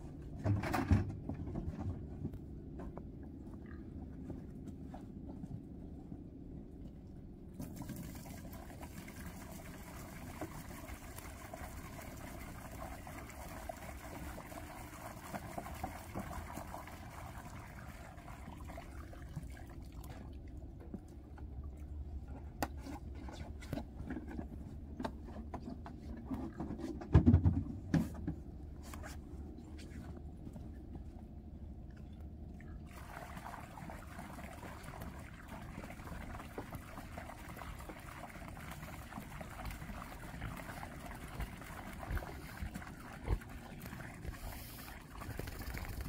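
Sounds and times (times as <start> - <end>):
water pouring into bowl: 32.9 - 42.6, 43.3 - 46.0.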